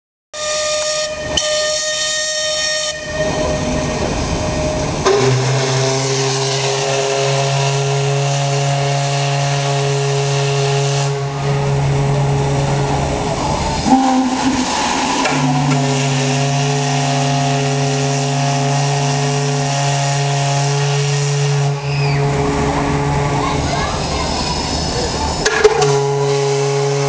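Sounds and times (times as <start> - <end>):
high-pitched steam whistle: 0.4 - 12.4, 13.6 - 22.5, 24.0 - 27.0
deep steam whistle: 0.4 - 27.0
steam hissing: 12.8 - 22.1, 23.6 - 27.0.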